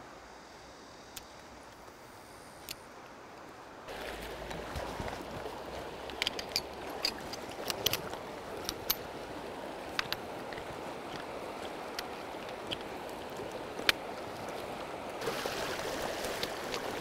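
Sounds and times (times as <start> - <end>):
water rushing over rocks: 3.9 - 17.0.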